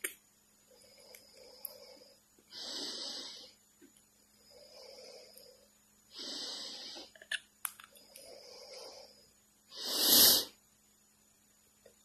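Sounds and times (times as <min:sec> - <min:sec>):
breathy hissing puffs: 0:00.8 - 0:03.6, 0:04.3 - 0:07.1, 0:08.0 - 0:10.6.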